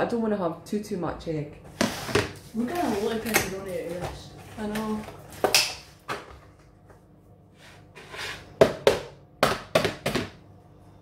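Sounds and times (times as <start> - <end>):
items knocking on kitchen surfaces: 1.7 - 6.8, 8.6 - 10.5.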